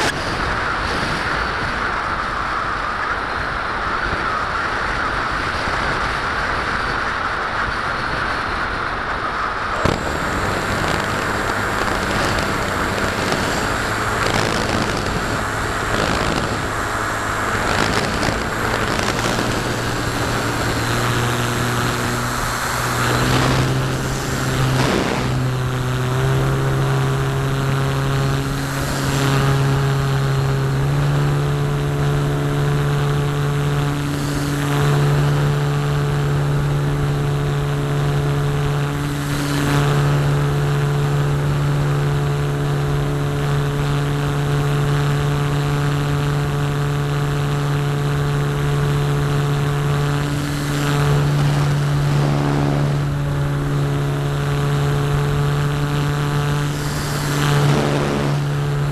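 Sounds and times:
electric motor and propeller drone: 0:00.0 - 0:58.9.

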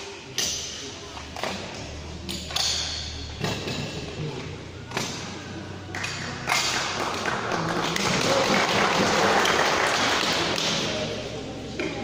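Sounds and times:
crowd applauding: 0:06.7 - 0:10.8.

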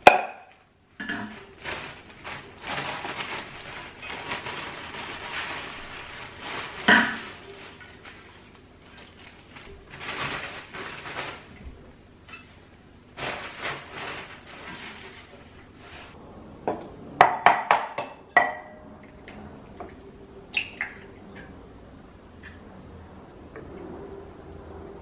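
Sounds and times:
plastic bag crinkling: 0:01.0 - 0:11.8, 0:12.4 - 0:16.2
kitchenware clinking and knocking: 0:16.7 - 0:18.8.

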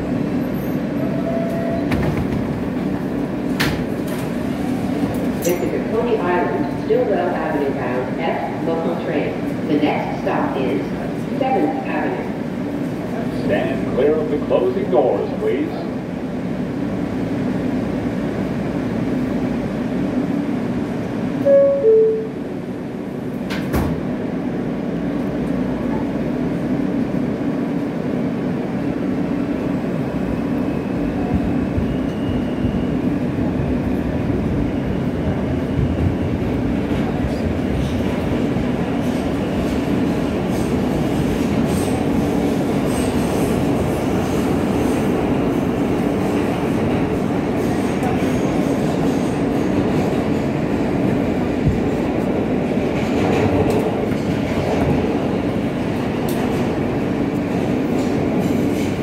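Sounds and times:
train rumble and wheel noise: 0:00.0 - 0:59.0
two-note door chime: 0:21.5 - 0:22.4.

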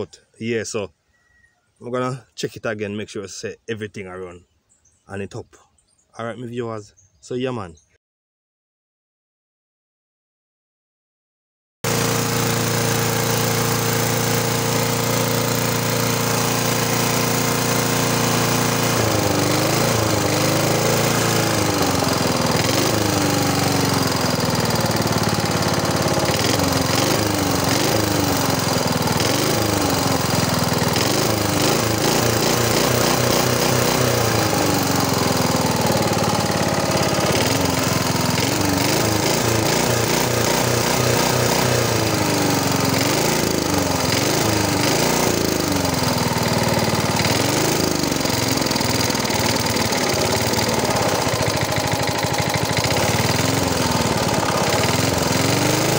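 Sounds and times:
lawn mower engine revving: 0:11.8 - 0:55.9.

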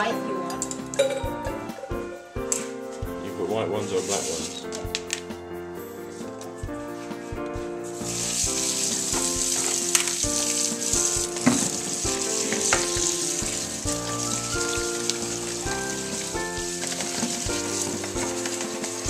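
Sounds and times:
music: 0:00.0 - 0:19.0
strainer knocking: 0:00.7 - 0:02.7, 0:08.3 - 0:19.0
tap water running into bowl: 0:08.0 - 0:19.0.

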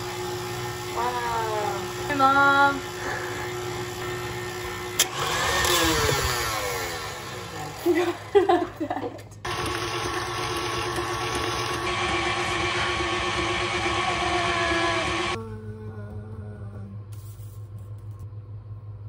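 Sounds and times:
stand mixer motor whining: 0:00.0 - 0:08.4, 0:09.4 - 0:15.4.

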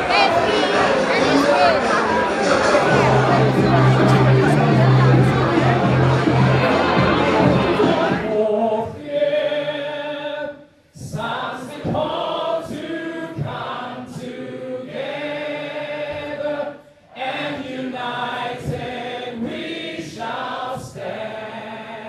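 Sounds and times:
crowd singing: 0:00.0 - 0:22.0.

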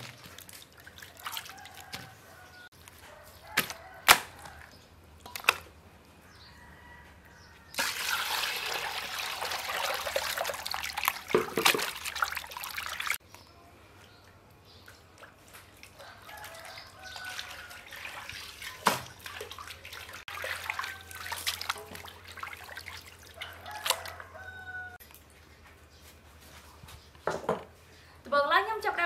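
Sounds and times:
water sloshing and splashing: 0:00.0 - 0:02.7, 0:07.8 - 0:13.2, 0:14.0 - 0:25.4.

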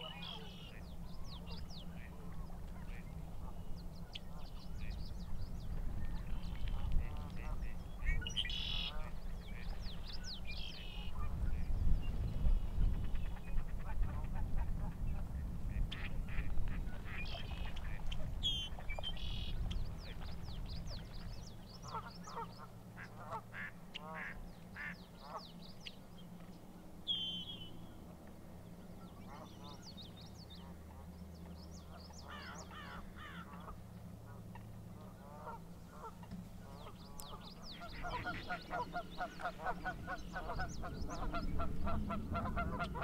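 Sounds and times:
waterfowl calling: 0:00.0 - 0:00.9, 0:06.6 - 0:09.8, 0:21.8 - 0:25.5, 0:31.9 - 0:43.0.

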